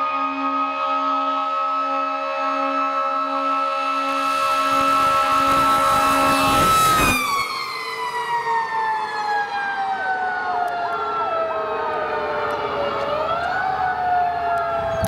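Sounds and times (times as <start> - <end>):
electronic siren cycling: 0.0 - 15.0
mechanical siren whine: 0.0 - 15.0.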